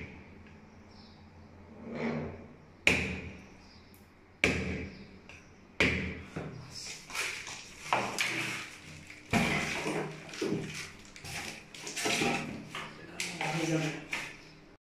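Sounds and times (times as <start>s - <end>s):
small knocks and rustling: 7.0s - 14.5s.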